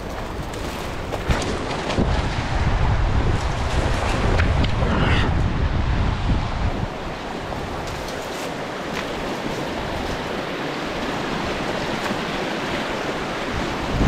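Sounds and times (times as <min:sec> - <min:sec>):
river water rushing over logs: 0:00.0 - 0:14.0
dry brush crackling: 0:07.8 - 0:11.2.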